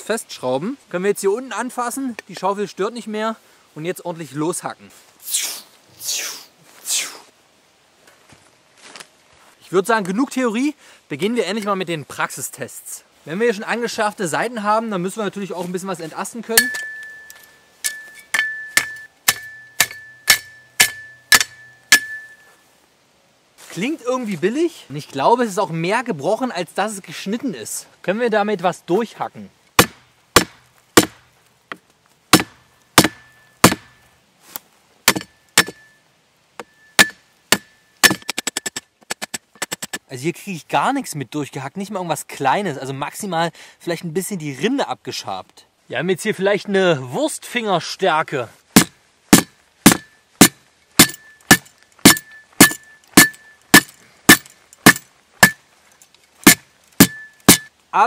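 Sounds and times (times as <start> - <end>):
shovel hacking at branch: 16.6 - 22.4, 29.8 - 31.3, 32.3 - 34.0, 35.1 - 35.9, 36.6 - 39.9, 48.8 - 55.6, 56.4 - 57.7
faint metallic ring: 16.6 - 22.7, 35.2 - 38.3, 51.1 - 53.7
spade scraping bark: 48.8 - 55.6, 56.4 - 57.7.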